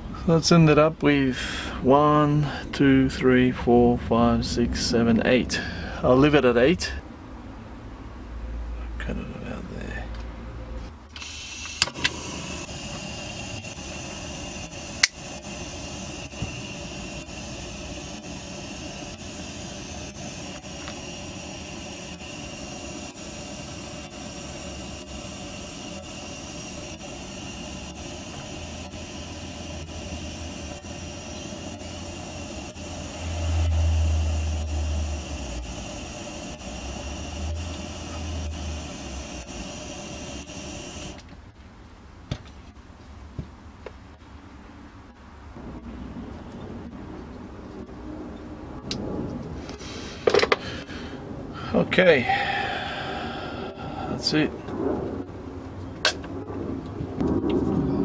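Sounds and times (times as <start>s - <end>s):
blow torch flame hissing: 10.9s - 41.3s, 48.9s - 57.8s
blow torch ignition clicks: 11.1s - 41.3s.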